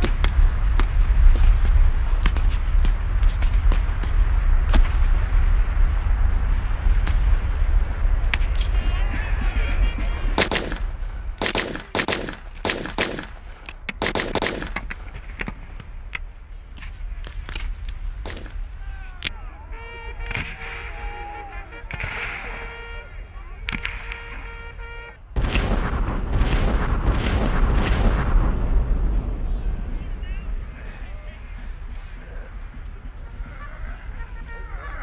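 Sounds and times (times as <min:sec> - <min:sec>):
sharp rifle shots: 0:10.4 - 0:15.5, 0:18.2 - 0:18.6, 0:23.7 - 0:28.6
heavy low rumble: 0:14.8 - 0:35.0.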